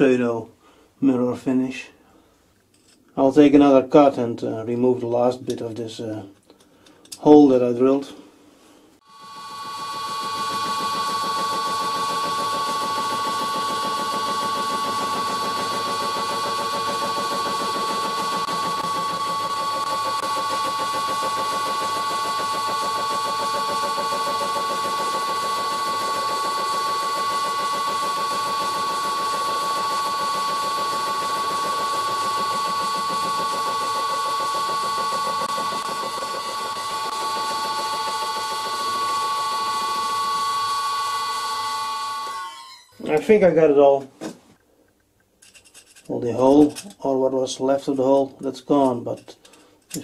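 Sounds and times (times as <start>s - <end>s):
lathe whine: 9.0s - 43.1s
mill inserts rattling while cutting: 9.4s - 40.4s.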